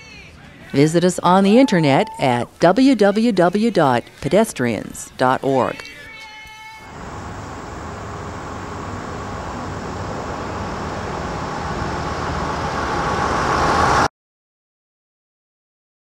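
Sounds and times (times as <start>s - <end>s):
car approaching on rough road: 6.9s - 14.1s.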